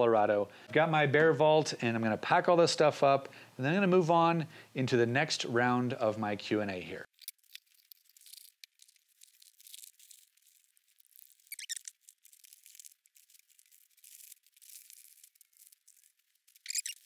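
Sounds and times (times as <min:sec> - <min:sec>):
packaging squeaking on plastic: 0:07.1 - 0:17.0
plastic bags crinkling: 0:07.1 - 0:17.0.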